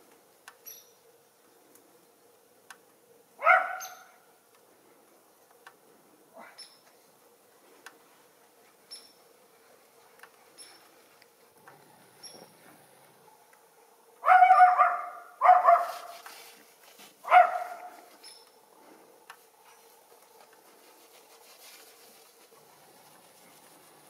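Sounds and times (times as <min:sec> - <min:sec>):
small dog barking: 0:03.4 - 0:04.2, 0:14.2 - 0:16.1, 0:17.2 - 0:18.1.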